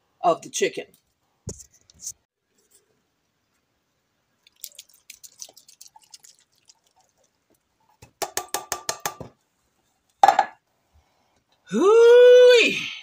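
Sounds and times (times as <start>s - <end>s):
corn kernels splashing into pot: 4.4s - 7.4s.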